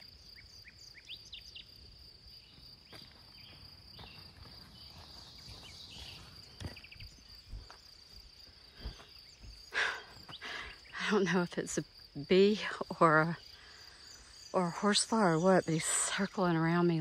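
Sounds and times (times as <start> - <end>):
footsteps scuffing on dirt: 2.5 - 10.4.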